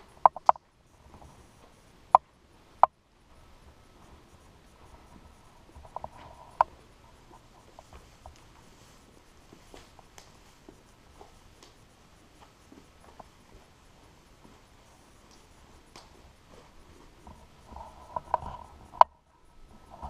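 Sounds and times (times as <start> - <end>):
faint thin whine: 0.0 - 20.0
sharp clicks and taps: 0.2 - 0.7.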